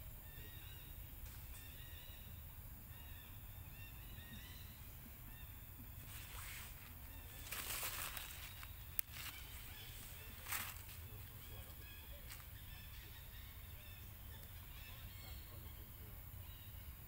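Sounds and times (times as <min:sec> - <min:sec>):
distant bird calls: 0:00.0 - 0:17.0
rustling noise: 0:06.0 - 0:11.3.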